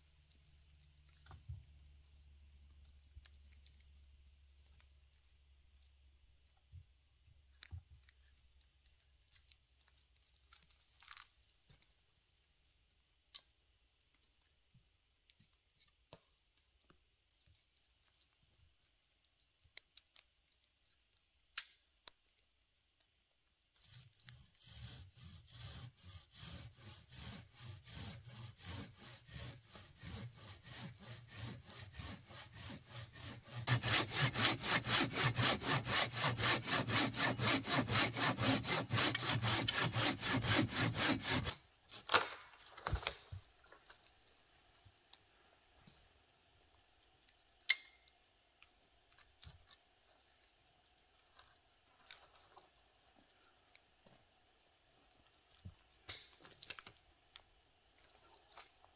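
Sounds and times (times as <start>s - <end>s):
hand saw cutting wood: 23.8s - 42.2s.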